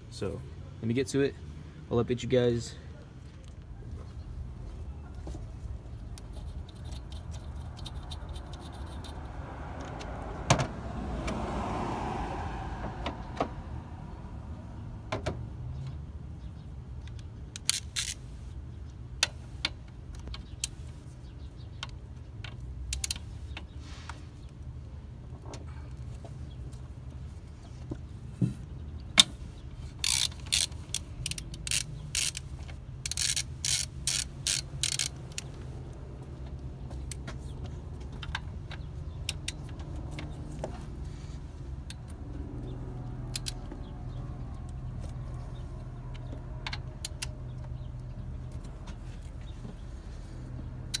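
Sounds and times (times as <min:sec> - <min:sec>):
hand ratchet clacking: 0:06.2 - 0:09.2, 0:30.0 - 0:35.6.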